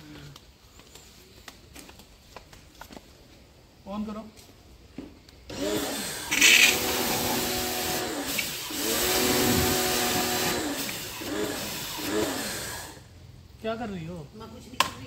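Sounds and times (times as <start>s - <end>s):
pressure washer motor running: 5.5s - 13.0s
spray hiss: 5.6s - 13.0s.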